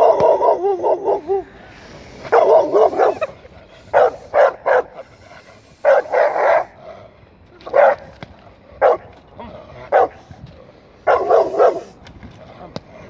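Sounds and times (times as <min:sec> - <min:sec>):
large dog barking deeply: 0:00.0 - 0:01.5, 0:02.2 - 0:05.2, 0:05.8 - 0:06.8, 0:08.8 - 0:10.2, 0:11.0 - 0:12.0.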